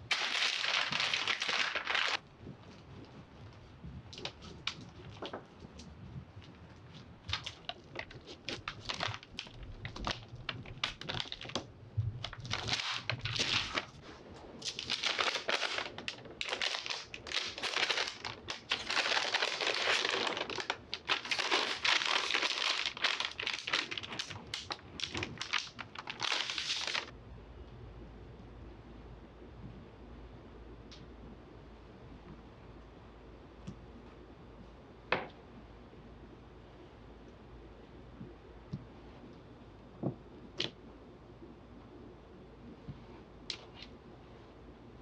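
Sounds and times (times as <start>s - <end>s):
parchment paper crinkling: 0.0s - 2.2s, 6.4s - 14.0s, 14.6s - 27.1s.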